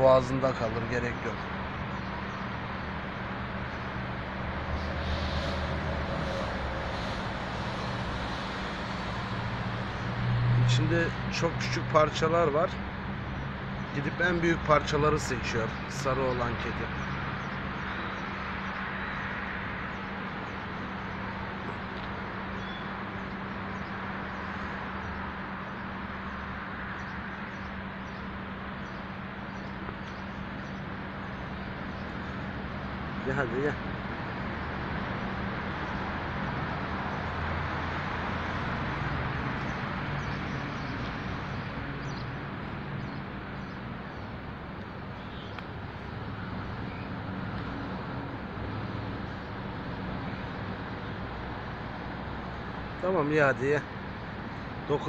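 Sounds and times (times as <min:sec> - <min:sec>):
constant low hum: 0:00.0 - 0:12.1
traffic noise: 0:00.0 - 0:55.0.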